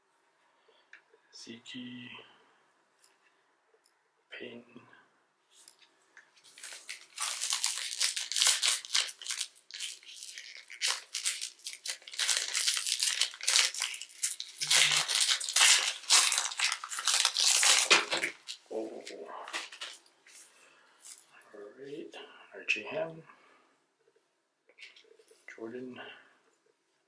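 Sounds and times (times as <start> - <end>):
plastic wrapper crinkling and tearing: 6.4 - 20.1.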